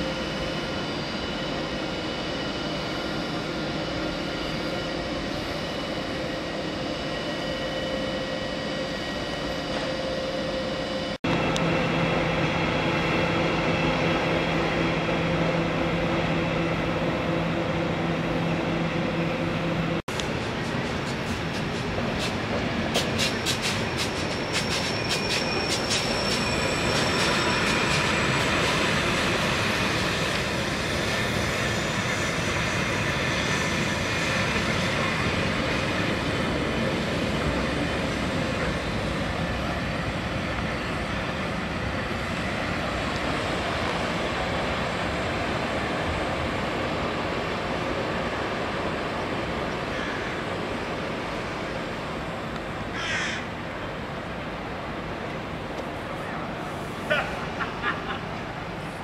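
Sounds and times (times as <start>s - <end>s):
train wheels squealing: 0.0s - 11.2s, 21.0s - 42.8s
train rumble: 0.0s - 59.0s
train wheels clicking over rail joints: 20.1s - 28.8s.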